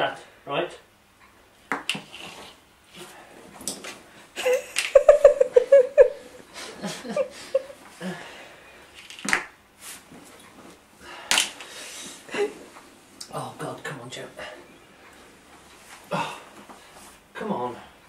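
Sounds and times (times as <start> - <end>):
man chuckling: 4.4 - 8.4.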